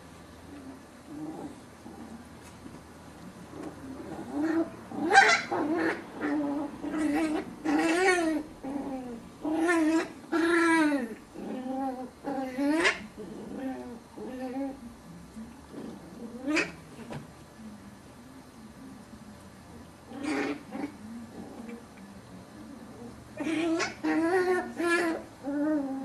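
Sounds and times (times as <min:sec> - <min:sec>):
puppies yelping and whining: 0:23.4 - 0:26.0.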